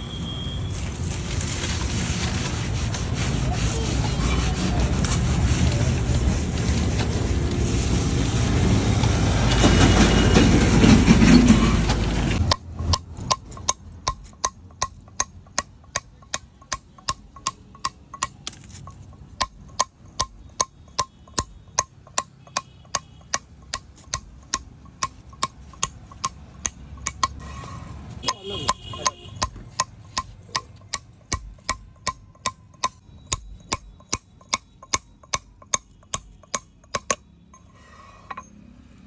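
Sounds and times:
leaves rubbed over stone: 0.7 - 9.0
hammer tapping steel chisel: 12.4 - 27.4, 28.2 - 38.5.

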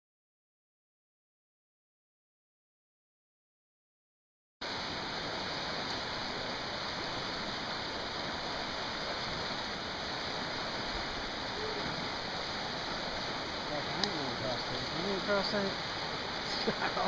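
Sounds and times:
flooded creek rushing: 4.6 - 17.0.

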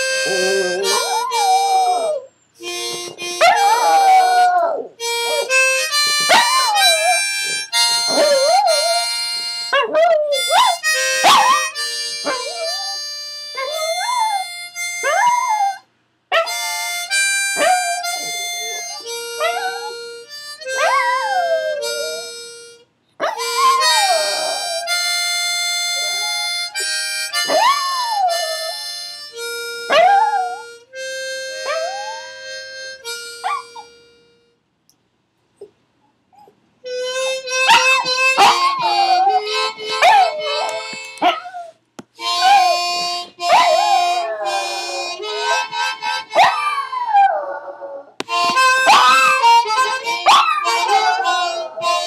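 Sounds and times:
dog howling: 0.0 - 2.3, 3.4 - 5.6, 6.3 - 13.0, 17.6 - 20.0, 20.7 - 22.3, 23.2 - 25.1, 25.9 - 26.7, 27.5 - 28.7, 31.6 - 32.5, 37.7 - 48.2, 48.8 - 52.0
long held musical notes: 0.0 - 9.7, 36.9 - 41.2, 42.2 - 46.4, 48.2 - 52.0.

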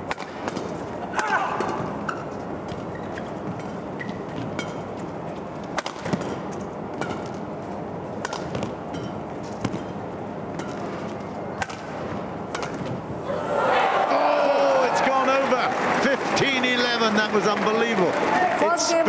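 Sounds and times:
shuttlecock struck by rackets: 0.0 - 2.0, 5.7 - 7.5, 8.2 - 13.0.

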